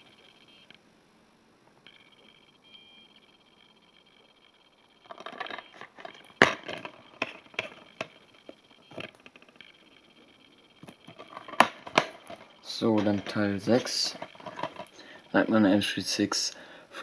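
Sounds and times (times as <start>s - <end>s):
plastic case clicks and rattles: 5.1s - 8.2s, 10.8s - 14.9s.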